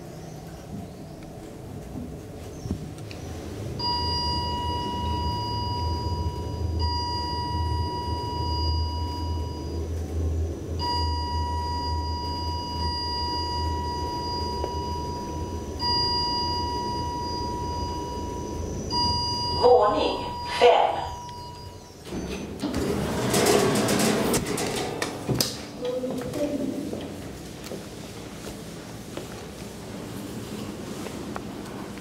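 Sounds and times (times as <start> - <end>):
low hum: 0.4 - 27.4
high electronic alarm beep: 3.8 - 9.8, 10.8 - 22.0.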